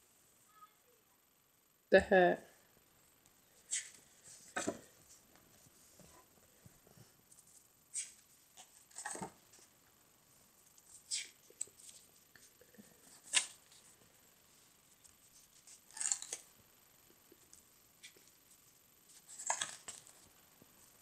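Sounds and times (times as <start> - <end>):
paper pages rustling: 17.4 - 20.3.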